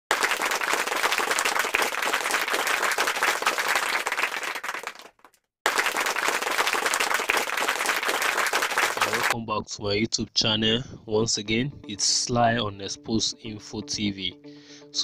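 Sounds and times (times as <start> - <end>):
many hands clapping: 0.1 - 9.4.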